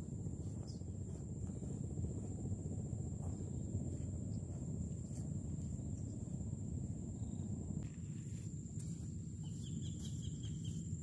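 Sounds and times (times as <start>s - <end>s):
low rumbling noise: 0.0s - 9.4s.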